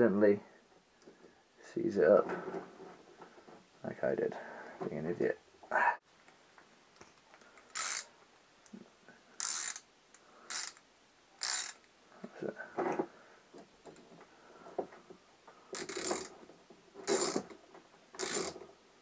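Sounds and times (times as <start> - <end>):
ratchet wrench clicking: 7.7 - 8.1, 9.4 - 9.9, 10.5 - 10.8, 11.4 - 11.9, 15.8 - 16.3, 17.1 - 17.5, 18.2 - 18.6.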